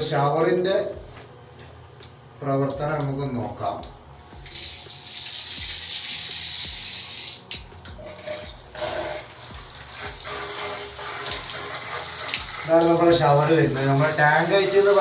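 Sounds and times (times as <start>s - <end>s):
shower head spraying: 4.4s - 7.6s, 9.1s - 15.0s.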